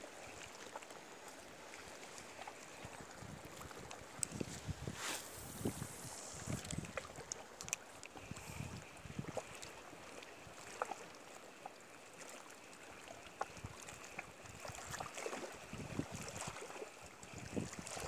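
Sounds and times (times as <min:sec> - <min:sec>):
water lapping: 0:00.0 - 0:18.0
wind buffeting microphone: 0:02.8 - 0:07.2, 0:08.2 - 0:09.4, 0:15.7 - 0:16.5, 0:17.3 - 0:18.0.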